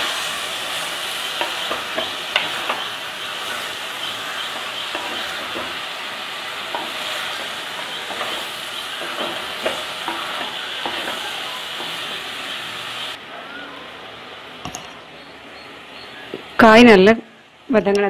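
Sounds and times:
vegetables sizzling in oil: 0.0 - 13.2.

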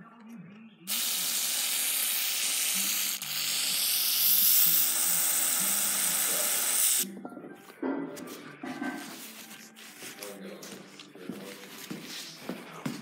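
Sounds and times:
pressurised spray hissing: 0.9 - 7.0.

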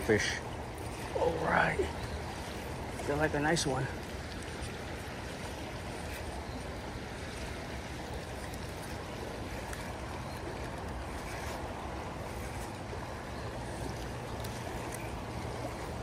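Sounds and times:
creek water rushing: 0.0 - 16.0.

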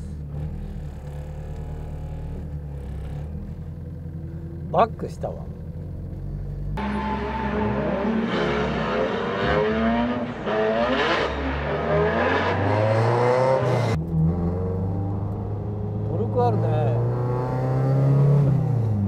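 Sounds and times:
car engine revving: 5.7 - 19.0.

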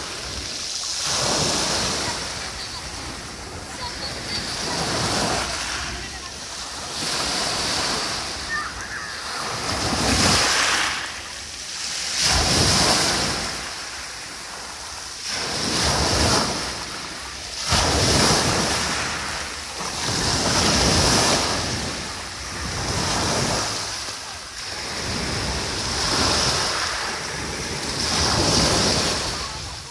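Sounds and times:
waves washing on pebble beach: 0.0 - 29.9.

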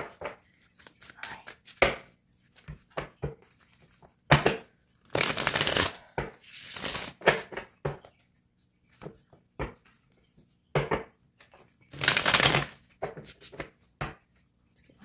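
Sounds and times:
cards shuffling: 0.6 - 1.8, 5.0 - 7.2, 11.9 - 13.7.

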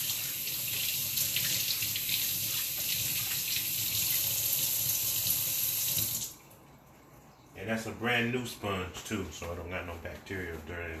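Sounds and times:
hands being washed: 0.0 - 6.4
faucet running into sink: 0.0 - 6.5.

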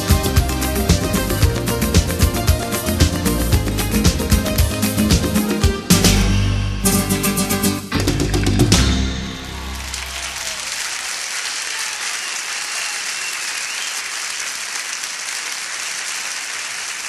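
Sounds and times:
audience applauding: 0.0 - 5.8, 8.1 - 17.0
band final chord: 2.2 - 10.3.

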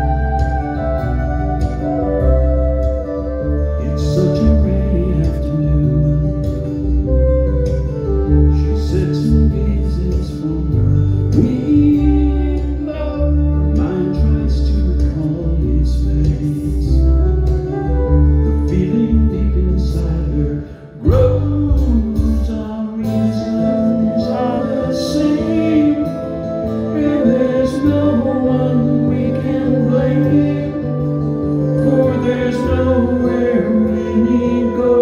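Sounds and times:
flute: 0.0 - 35.0
heavy bass: 0.0 - 35.0
live band music: 0.0 - 35.0
person singing: 0.0 - 35.0.

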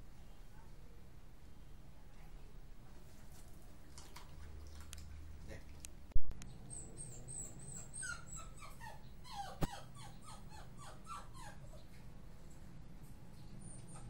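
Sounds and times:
dog whimpering: 6.5 - 11.9, 13.6 - 14.0.

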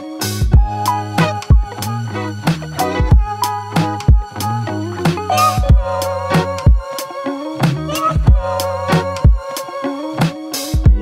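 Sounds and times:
synth music with bass line: 0.0 - 9.6
kick drum hits: 3.0 - 3.3, 5.6 - 5.9, 10.8 - 11.0.

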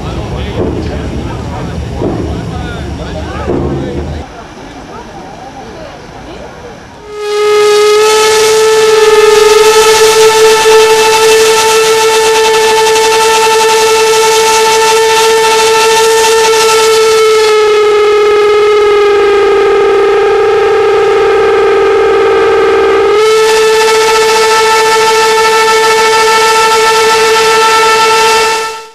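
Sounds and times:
train whistle blast: 7.0 - 28.9.

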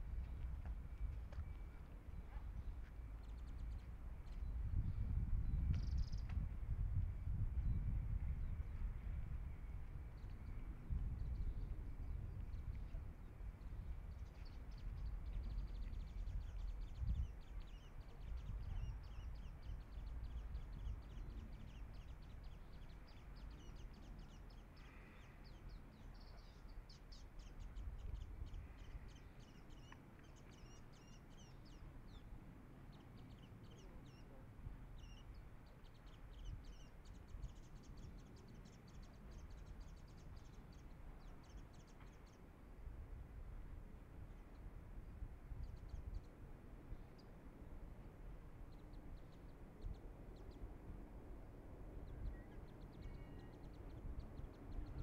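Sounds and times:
birds chirping: 13.6 - 42.5.

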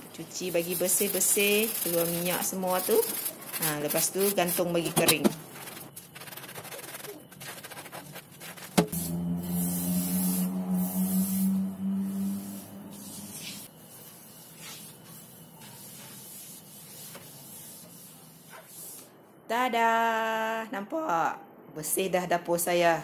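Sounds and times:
steady hum: 8.0 - 18.4.

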